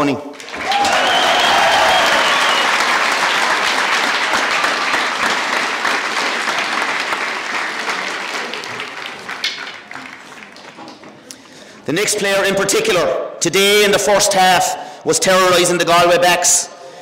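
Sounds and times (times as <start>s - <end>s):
crowd applauding: 0.3s - 11.7s.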